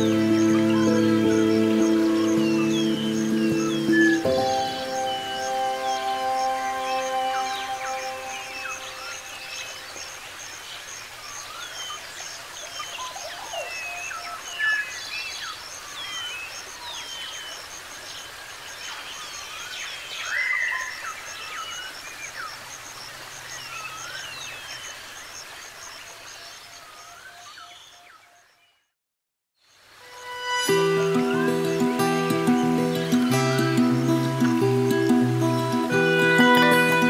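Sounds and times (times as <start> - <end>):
birds chirping and calling: 0.0 - 10.1.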